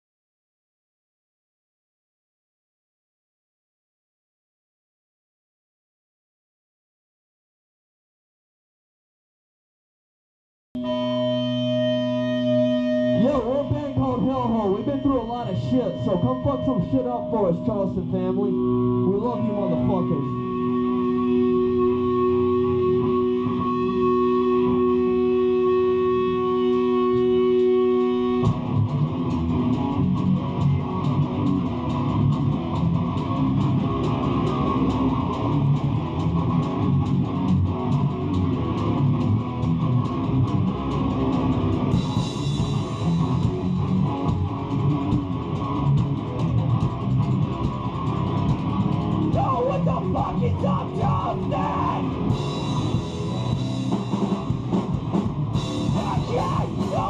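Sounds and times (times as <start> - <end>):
held electric guitar note: 10.8 - 31.9
hardcore band playing heavy riff: 10.8 - 57.0.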